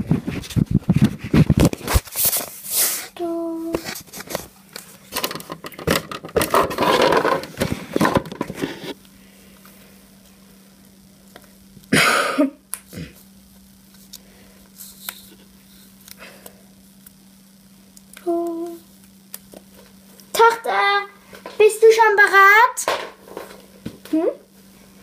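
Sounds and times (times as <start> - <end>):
faint steady hum: 0.0 - 25.0
phone handling rustling and knocking: 5.2 - 8.7.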